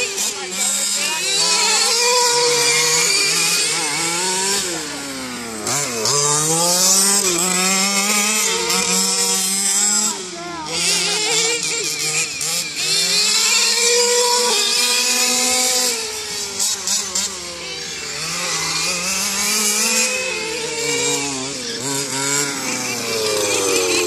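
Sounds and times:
small two-stroke engine revving: 0:00.0 - 0:24.0.

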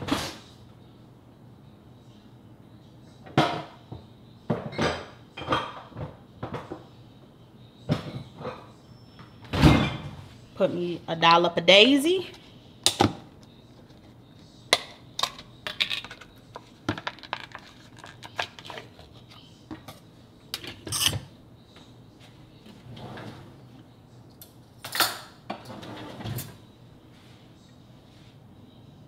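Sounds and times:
spoon and dishes clinking: 0:20.6 - 0:21.3.

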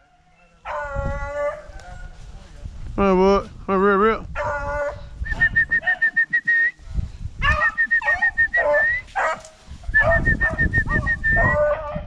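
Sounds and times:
hounds barking and yelping: 0:00.0 - 0:02.2, 0:04.4 - 0:05.1, 0:07.4 - 0:12.0
person whistling short notes: 0:05.2 - 0:06.8, 0:07.6 - 0:09.1, 0:10.0 - 0:11.4.

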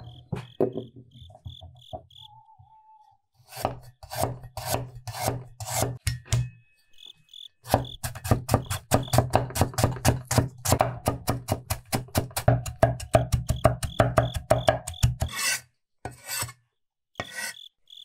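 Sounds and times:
cleaver chopping on wooden board: 0:07.7 - 0:15.5.

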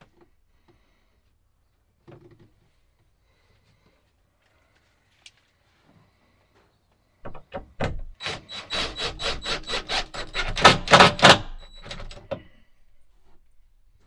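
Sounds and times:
cordless drill driving a screw: 0:08.2 - 0:12.0.

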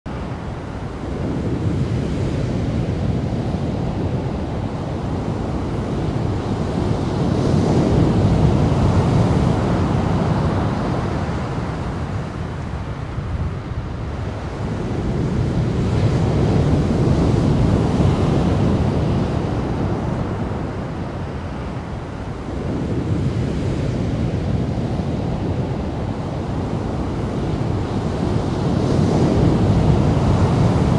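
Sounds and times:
wind buffeting microphone: 0:00.1 - 0:30.9.

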